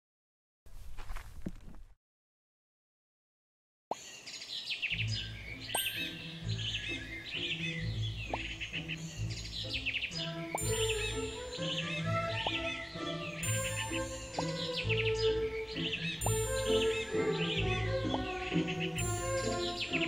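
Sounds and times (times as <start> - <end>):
birds chirping: 3.9 - 20.0
background music with low bass: 5.0 - 20.0.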